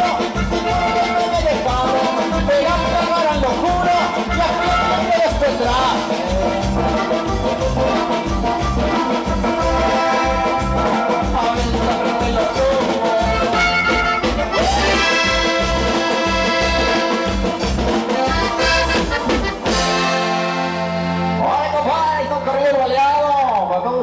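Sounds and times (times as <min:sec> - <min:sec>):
steady drum beat: 0:00.0 - 0:21.7
button accordion: 0:00.0 - 0:22.9
bass: 0:00.0 - 0:24.0.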